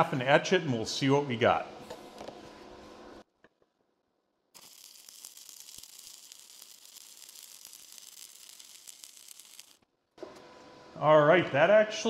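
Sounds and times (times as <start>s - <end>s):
welding arc crackling: 4.5s - 9.9s.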